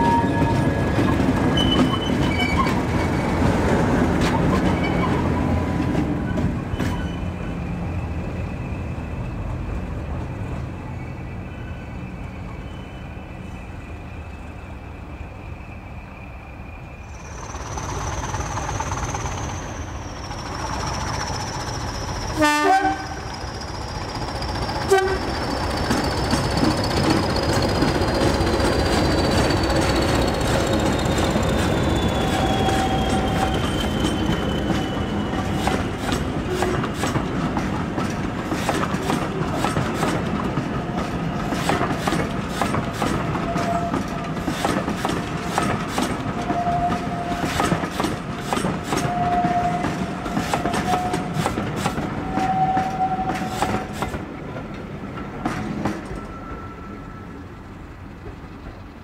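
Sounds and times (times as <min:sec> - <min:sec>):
diesel locomotive engine whistle: 0:00.0 - 0:03.4, 0:11.0 - 0:23.7, 0:24.7 - 0:25.7, 0:29.1 - 0:36.8, 0:43.3 - 0:44.3, 0:45.4 - 0:47.7, 0:48.8 - 0:54.0
wheels squealing: 0:00.0 - 0:09.6, 0:10.8 - 0:54.2
train wheels clicking over rail joints: 0:00.1 - 0:07.3, 0:17.2 - 0:56.4.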